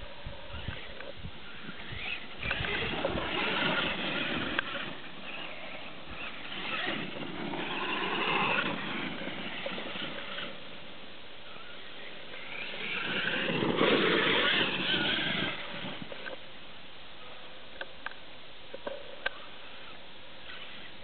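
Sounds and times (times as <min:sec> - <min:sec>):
electric motor whining: 0:00.3 - 0:10.8, 0:11.6 - 0:16.4.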